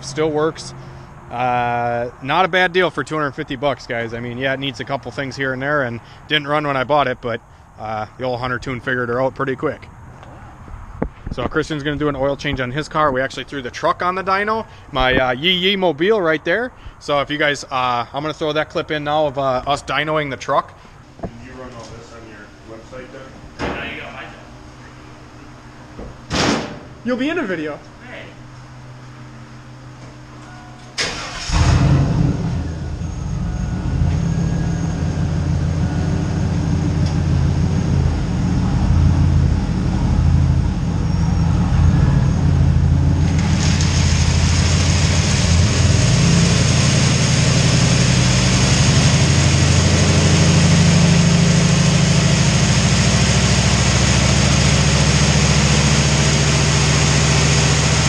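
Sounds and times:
sharp knock: 26.3 - 26.8
truck engine running loud: 31.0 - 58.0.

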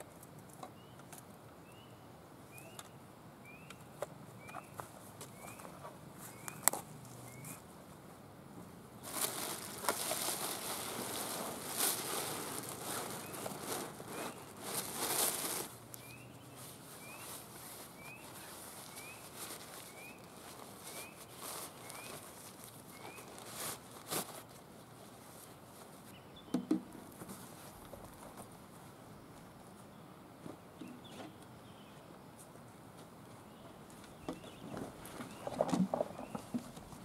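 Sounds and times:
bag and backpack rustling: 9.0 - 24.6.

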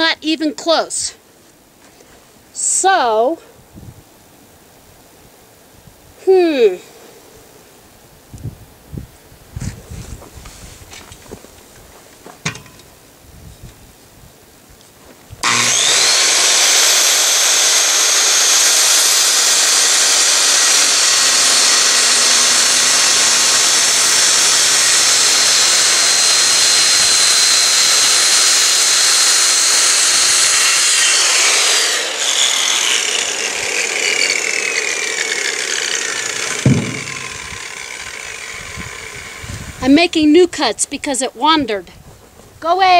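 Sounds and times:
circular saw cutting wood: 15.4 - 40.1
thump: 36.6 - 37.5.

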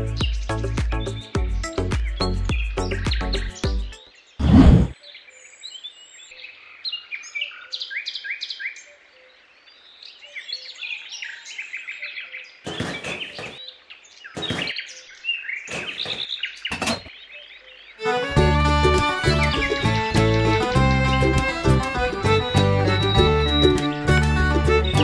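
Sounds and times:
birds chirping and singing: 0.0 - 25.0.

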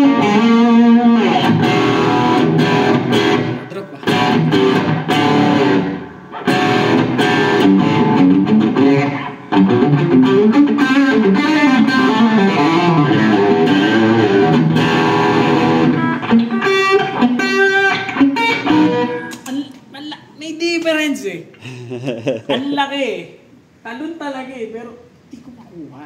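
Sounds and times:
electric guitar lead through amp: 0.0 - 19.4.

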